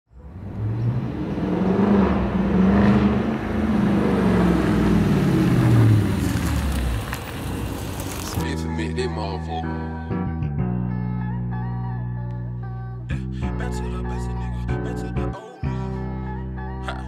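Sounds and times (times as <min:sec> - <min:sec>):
car engine revving: 0:00.1 - 0:08.4.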